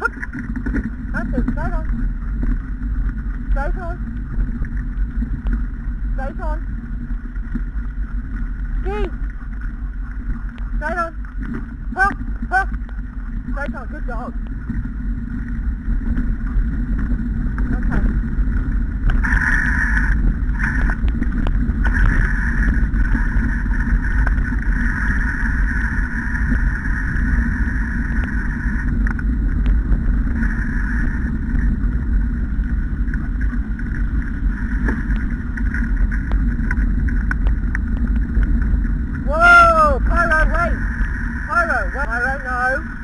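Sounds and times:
wheeled rig rumbling and rattling: 0.0 - 43.0.

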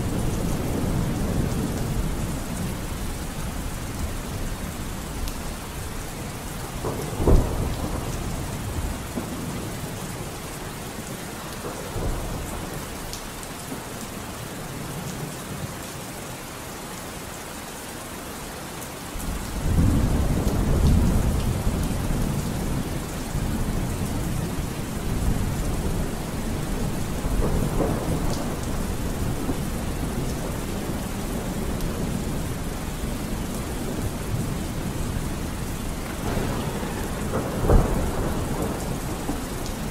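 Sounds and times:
steady rain: 0.0 - 39.9
thunder: 6.6 - 10.0, 19.2 - 39.9.

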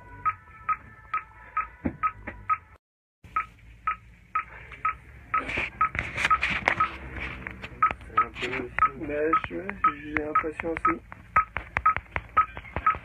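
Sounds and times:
rapid electronic beeping: 3.3 - 7.0, 7.8 - 13.0.

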